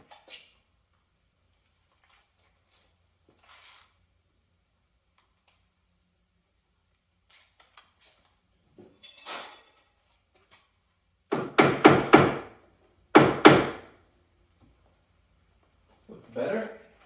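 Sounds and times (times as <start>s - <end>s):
rustle: 1.5s - 4.1s.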